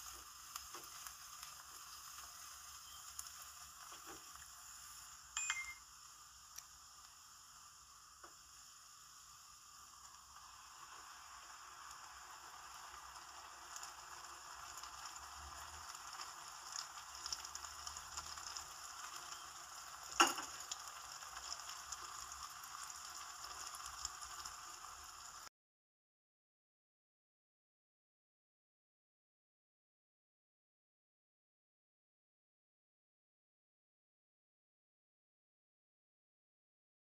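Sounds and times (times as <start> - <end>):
food sizzling in a frying pan: 0.0 - 25.5.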